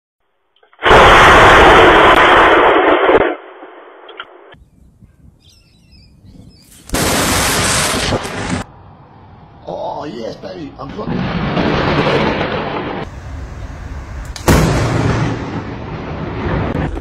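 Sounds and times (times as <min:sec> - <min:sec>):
loud distorted thunderclaps: 0:00.8 - 0:03.4, 0:06.9 - 0:08.7, 0:11.0 - 0:17.0.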